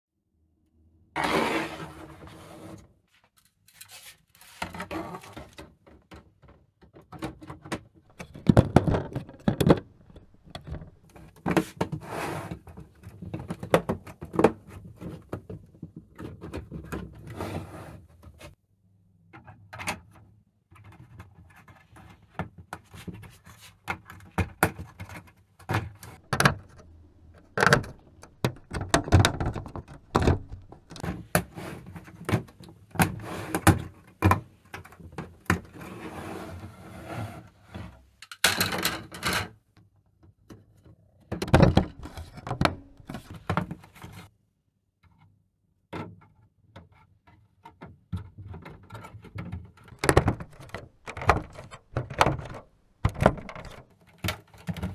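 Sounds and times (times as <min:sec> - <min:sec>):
plastic pieces clicking and rattling: 0:26.2 - 0:31.0, 0:49.9 - 0:54.9.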